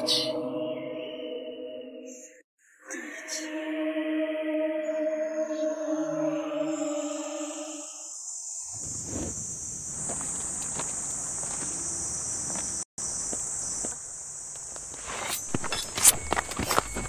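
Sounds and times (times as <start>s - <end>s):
crickets chirping: 6.5s - 17.0s.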